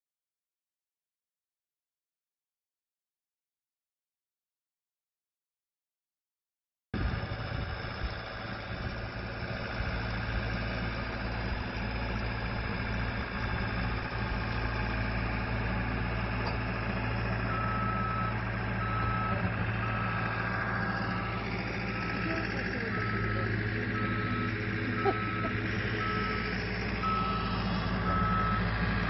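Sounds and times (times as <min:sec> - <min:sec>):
diesel engine running under load: 0:07.0 - 0:29.0
backup alarm beeps: 0:17.5 - 0:20.4, 0:21.9 - 0:28.7.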